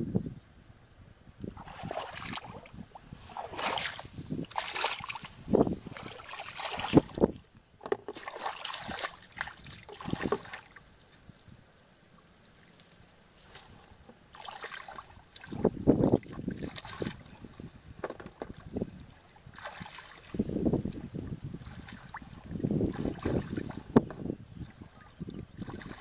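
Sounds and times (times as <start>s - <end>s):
splashing in a muddy puddle: 1.5s - 11.3s, 12.6s - 17.6s, 18.4s - 26.0s.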